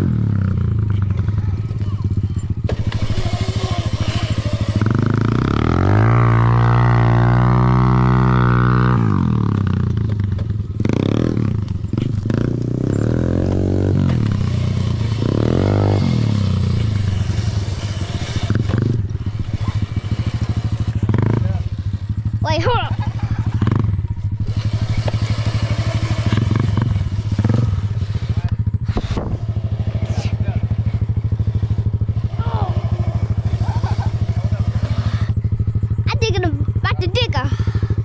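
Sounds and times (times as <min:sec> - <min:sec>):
dirt bike engine revving: 0:00.0 - 0:38.0.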